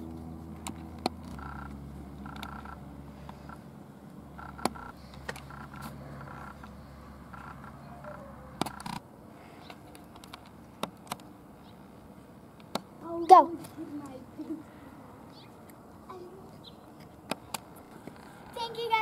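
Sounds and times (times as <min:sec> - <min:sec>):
sharp clicks: 0:00.6 - 0:03.6, 0:04.4 - 0:07.8, 0:08.6 - 0:09.0, 0:12.6 - 0:12.9.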